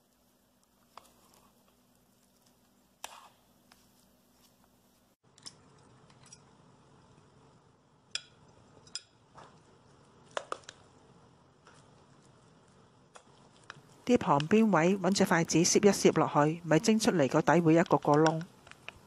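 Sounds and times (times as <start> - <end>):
thick batter being stirred: 0.2 - 4.7.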